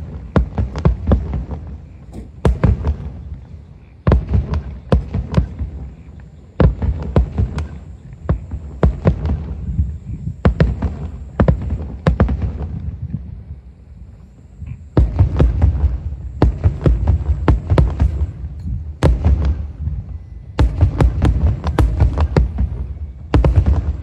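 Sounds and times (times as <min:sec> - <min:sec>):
firework shells booming: 0:00.0 - 0:03.4, 0:06.6 - 0:13.0, 0:14.9 - 0:24.0.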